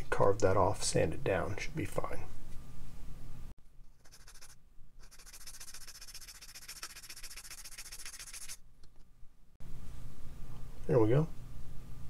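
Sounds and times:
plastic being sanded: 4.0s - 8.6s.

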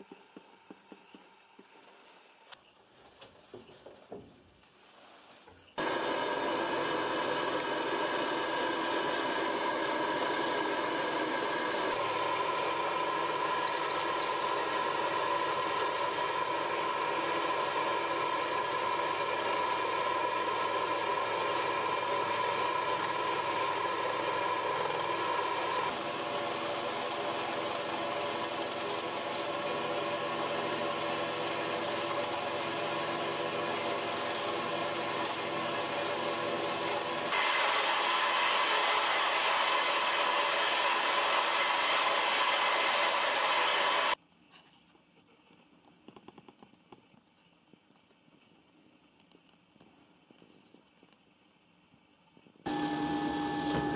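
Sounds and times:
scroll saw cutting wood: 5.8s - 44.2s, 52.7s - 53.9s.

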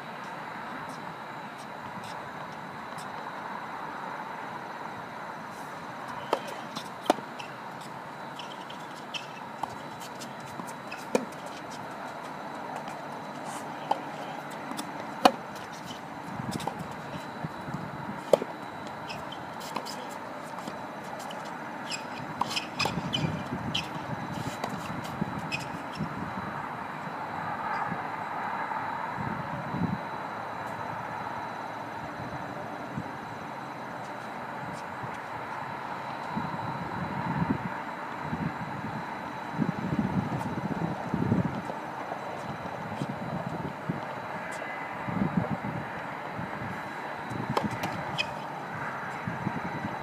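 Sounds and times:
outdoor background hum: 0.0s - 50.0s
tennis ball hitting racket and court: 6.1s - 26.0s, 46.9s - 48.7s.

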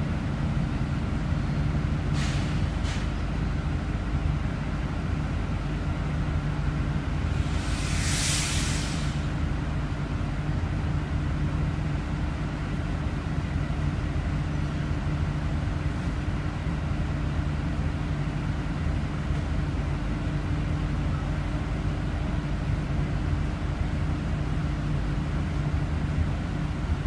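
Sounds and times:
bus diesel engine idling: 0.0s - 27.0s
air hiss: 2.1s - 3.1s, 7.3s - 9.4s.

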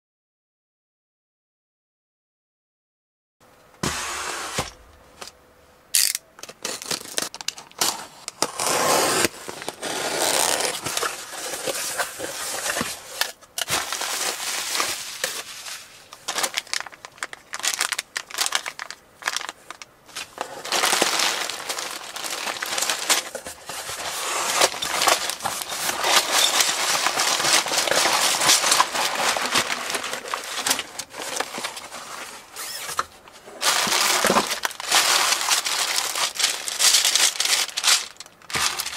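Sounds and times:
plastic bags crinkling: 6.4s - 38.9s
cardboard box opening: 7.8s - 13.2s, 20.4s - 38.9s.

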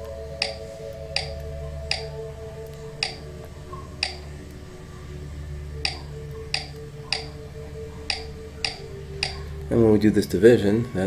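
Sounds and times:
low steady hum: 0.0s - 11.0s
sharp clicks: 0.4s - 3.3s, 4.0s - 4.6s, 5.8s - 7.4s, 8.1s - 9.4s.

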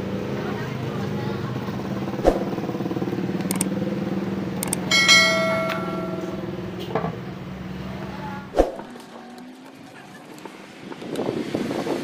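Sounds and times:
engine-like drone: 0.0s - 11.5s
metal object ringing like bell: 4.8s - 6.8s.

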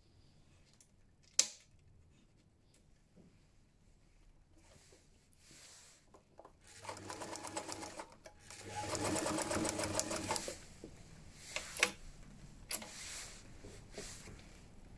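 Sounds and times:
sewing machine stitching: 6.6s - 10.6s.

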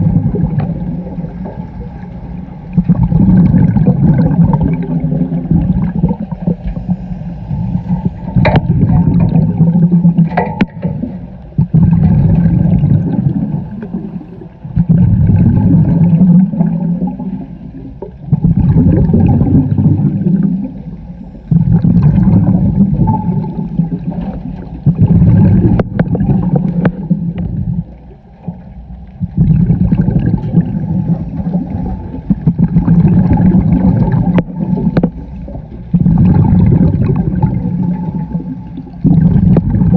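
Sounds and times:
regulator exhale bubbles: 0.0s - 39.9s
regulator inhale: 6.6s - 8.4s.

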